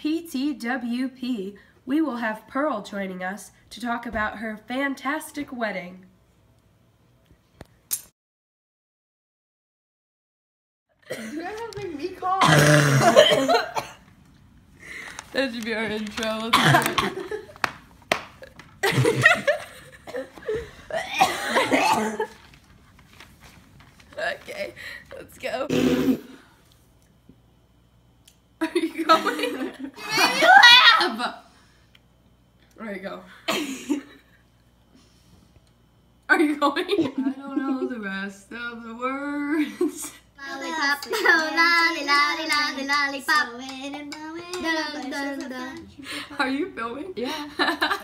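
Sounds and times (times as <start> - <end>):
girl coughing: 11.1 - 11.4, 12.4 - 14.0, 16.5 - 17.1, 20.0 - 20.3, 20.9 - 22.3, 25.7 - 26.4.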